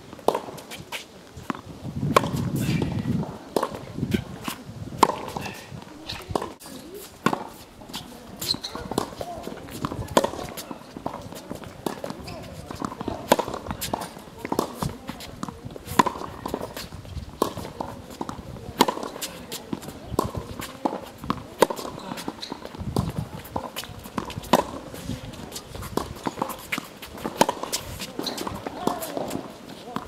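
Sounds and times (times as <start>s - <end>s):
footsteps on hard court: 0.1s - 30.0s
racket hitting tennis ball: 0.2s - 30.0s
ball bouncing on court: 17.4s - 30.0s.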